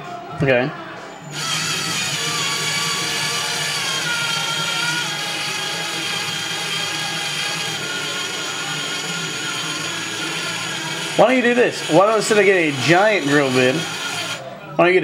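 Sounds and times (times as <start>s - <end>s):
electric drill boring into cork: 1.3s - 14.4s.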